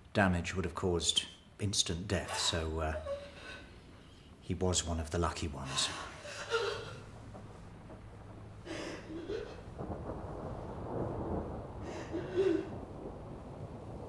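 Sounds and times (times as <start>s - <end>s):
woman sobbing: 2.3s - 3.9s, 5.6s - 7.2s, 8.6s - 9.7s, 11.9s - 12.8s.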